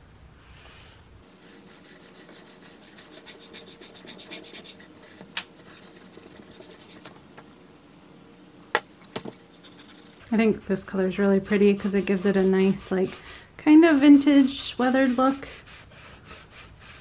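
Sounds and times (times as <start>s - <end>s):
cloth rag rubbing wood: 1.2s - 7.1s, 9.4s - 17.0s.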